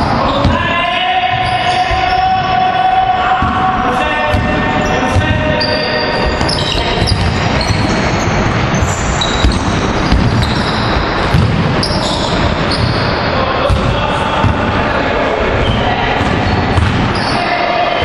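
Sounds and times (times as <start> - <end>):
basketballs bouncing on wooden floor: 0.0 - 0.7, 3.3 - 14.8, 15.6 - 17.2
sneakers squeaking: 0.0 - 14.8, 15.4 - 18.0.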